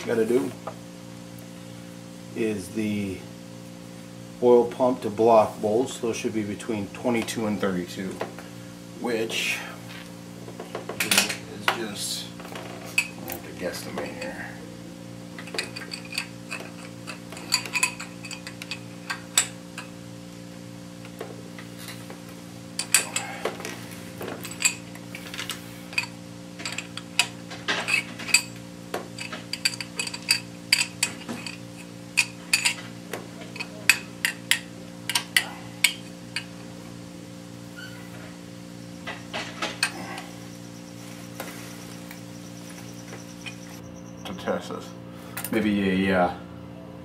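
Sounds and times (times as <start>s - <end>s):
steady low hum: 0.0s - 47.0s
hand ratchet clicking: 29.2s - 32.8s.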